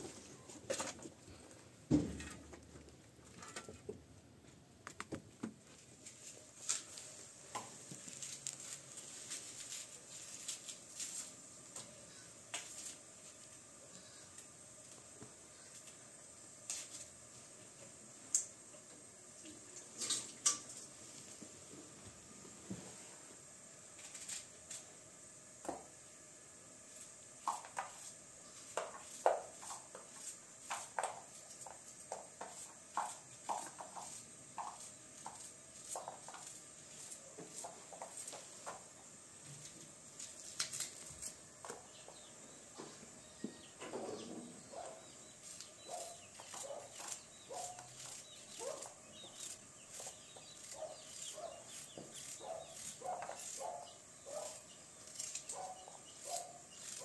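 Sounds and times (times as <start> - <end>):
poultry clucking: 27.4 - 57.0.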